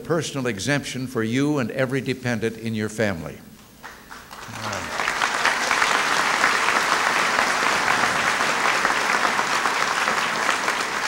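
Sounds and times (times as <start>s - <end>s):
audience clapping: 3.8s - 11.0s.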